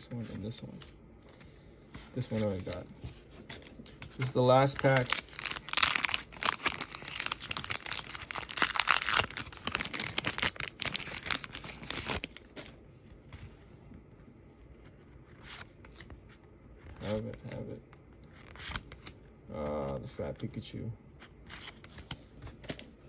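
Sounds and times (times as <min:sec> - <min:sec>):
foil wrapper tearing and crinkling: 0:04.4 - 0:12.5.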